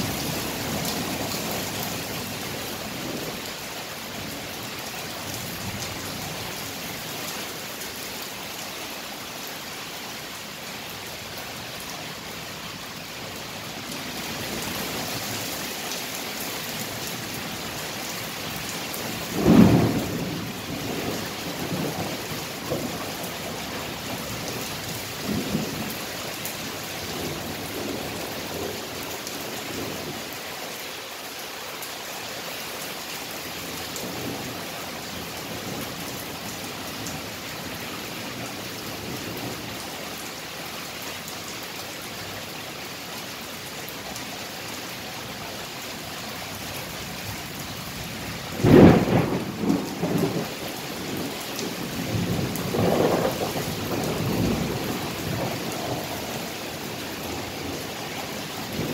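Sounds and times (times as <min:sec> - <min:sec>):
steady rain: 0:00.0 - 0:58.9
thunder rumbling: 0:19.2 - 0:23.2, 0:48.6 - 0:56.5.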